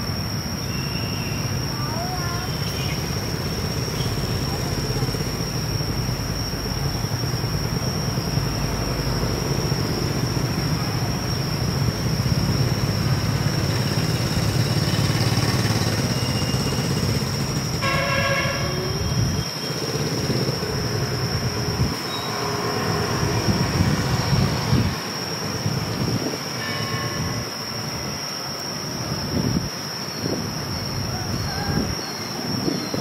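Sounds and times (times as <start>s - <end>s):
short horn toot: 17.8s - 19.0s.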